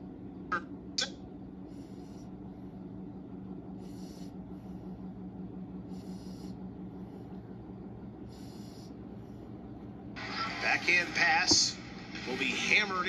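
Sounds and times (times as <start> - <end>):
low steady hum: 0.0 - 13.0
soft breathing: 1.6 - 3.0, 3.7 - 9.9.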